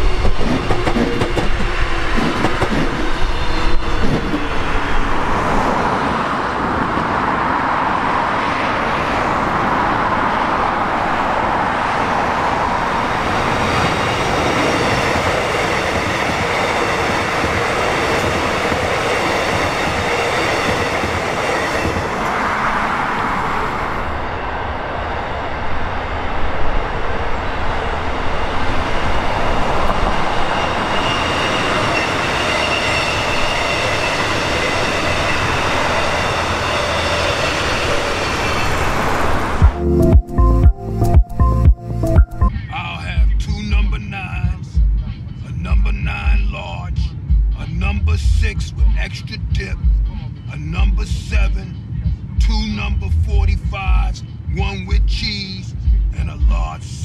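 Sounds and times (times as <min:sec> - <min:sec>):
train wheels whining on rails: 0:00.0 - 0:39.8.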